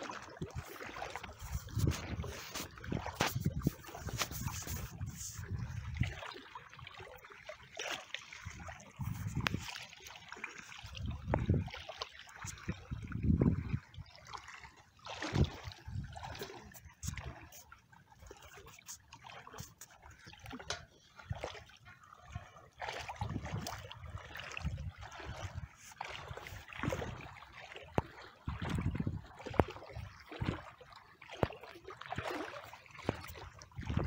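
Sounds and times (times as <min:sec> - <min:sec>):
water sloshing as person wades: 0:00.0 - 0:34.0.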